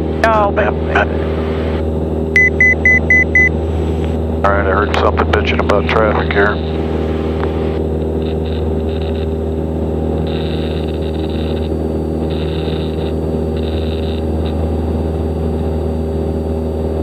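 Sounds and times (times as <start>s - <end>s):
light aircraft engine drone: 0.0s - 17.0s.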